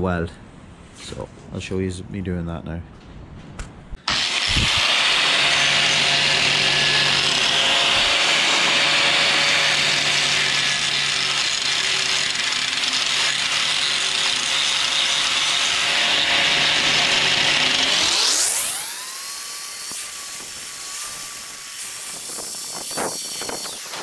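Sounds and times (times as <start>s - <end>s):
angle grinder cutting steel: 4.0s - 24.0s.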